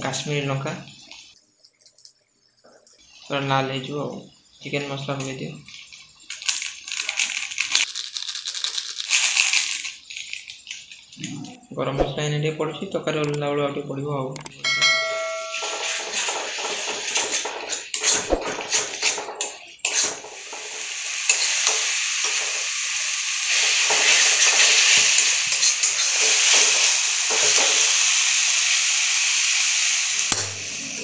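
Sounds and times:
food sizzling in oil: 0:20.2 - 0:30.8.

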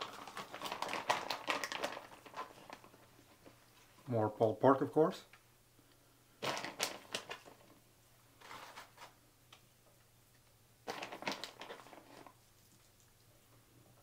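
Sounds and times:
food rustling and crackling on chips: 0:00.0 - 0:03.9, 0:06.4 - 0:07.8, 0:08.4 - 0:09.2, 0:10.8 - 0:13.4.

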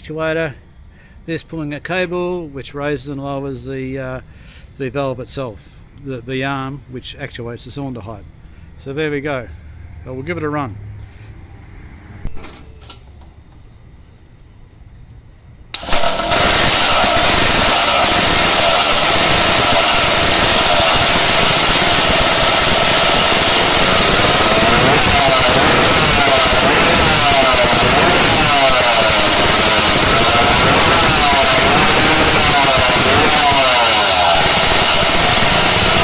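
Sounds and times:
two-stroke engine running loud: 0:15.8 - 0:36.0.

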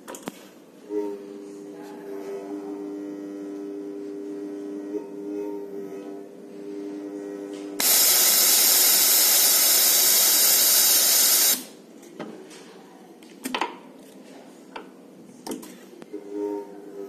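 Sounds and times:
compressed air hissing: 0:07.8 - 0:11.7.

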